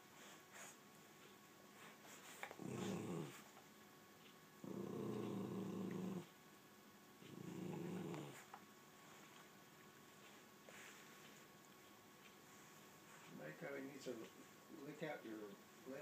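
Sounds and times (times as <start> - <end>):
dog growling low: 2.5 - 3.5, 4.6 - 6.3, 7.2 - 8.5.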